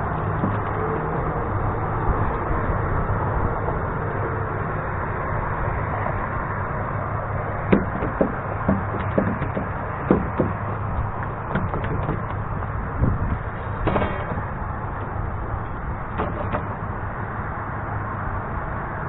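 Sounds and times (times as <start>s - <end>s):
steady rushing noise: 0.0s - 19.0s
sharp knocks on wood: 0.4s - 0.7s, 7.7s - 12.4s, 13.0s - 14.5s, 16.1s - 16.8s.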